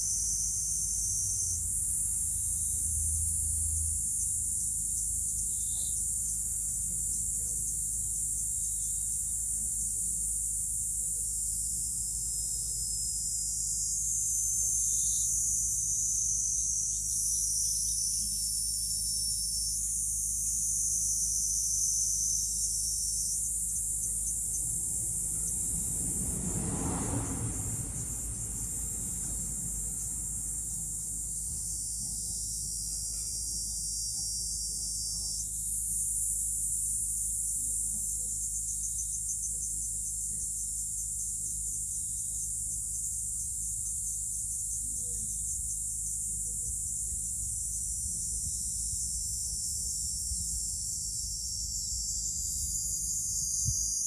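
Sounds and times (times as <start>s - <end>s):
high-pitched insect chorus: 0.0s - 54.0s.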